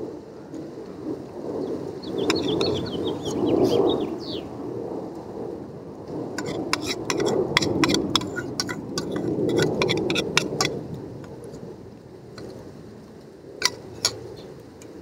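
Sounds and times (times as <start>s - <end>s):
rush of noise: 1.0s - 14.5s
bird chirping: 2.0s - 4.5s
metal spoon scraping in pot: 2.2s - 3.4s, 6.4s - 10.8s, 13.6s - 14.2s.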